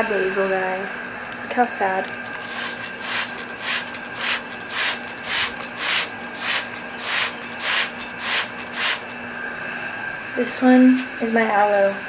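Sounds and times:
spray bottle squirts: 0:02.2 - 0:09.1.

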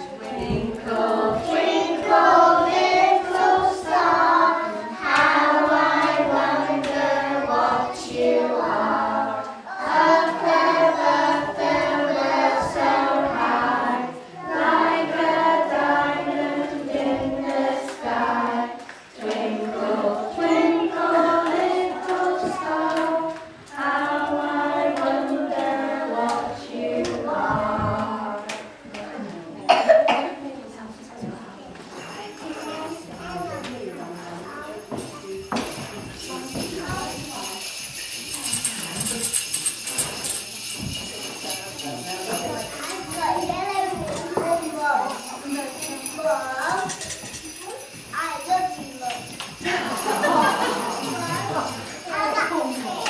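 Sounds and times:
children singing: 0:00.0 - 0:29.0, 0:40.2 - 0:47.1, 0:47.7 - 0:53.0.

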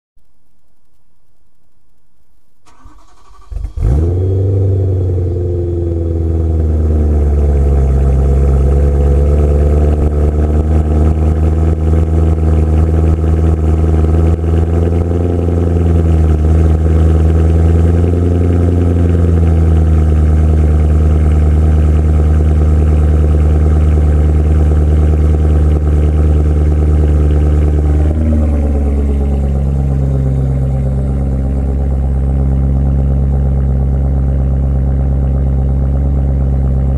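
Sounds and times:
car engine starting and idling: 0:02.6 - 0:36.9.

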